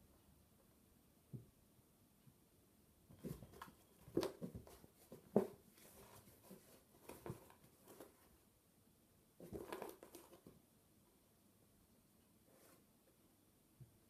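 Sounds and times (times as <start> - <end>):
cardboard rustling: 3.1 - 8.4, 9.4 - 10.5
kitten bumping cardboard box: 3.2 - 7.6.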